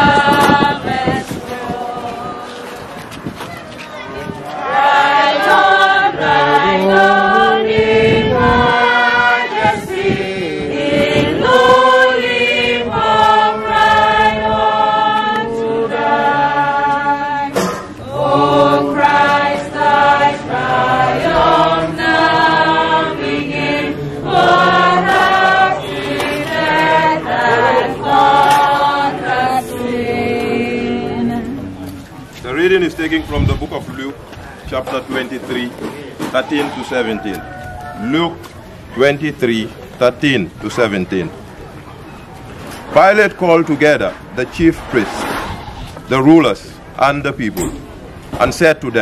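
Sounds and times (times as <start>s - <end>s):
choir singing: 0.0s - 3.0s, 4.4s - 32.0s.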